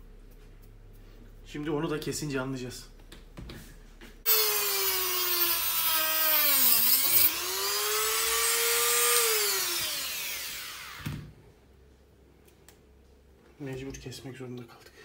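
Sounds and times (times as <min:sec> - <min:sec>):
rotary tool whining: 0:04.3 - 0:11.2.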